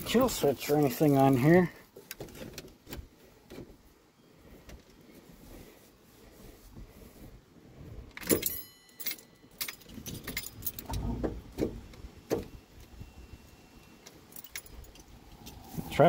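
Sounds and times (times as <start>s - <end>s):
keys jangling: 8.2s - 11.0s, 14.1s - 15.6s.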